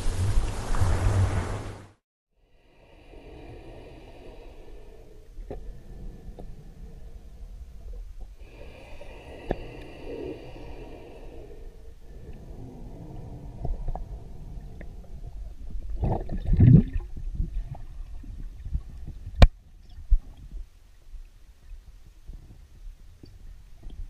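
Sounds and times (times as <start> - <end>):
rush of water: 0.0 - 2.0
underwater water gurgling: 12.2 - 19.4.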